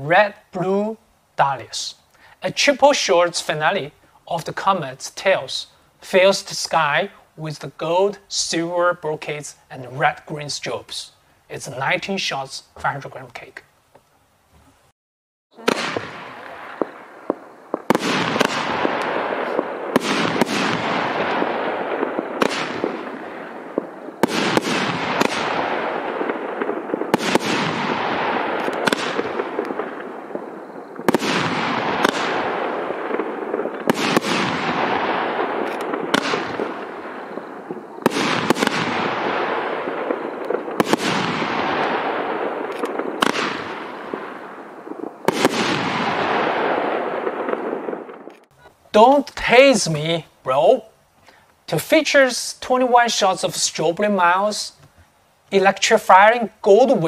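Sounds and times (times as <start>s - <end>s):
fireworks bangs: 15.6s - 50.8s.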